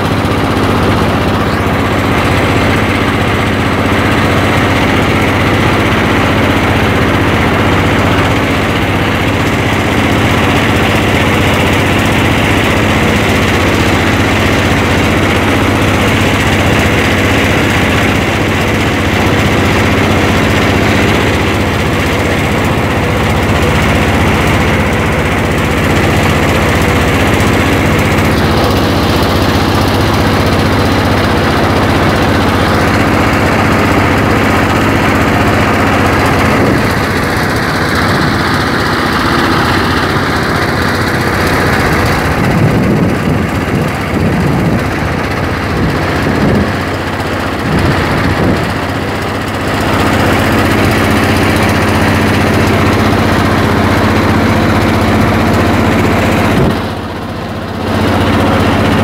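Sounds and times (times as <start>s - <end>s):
boat engine running: 0.0s - 59.0s.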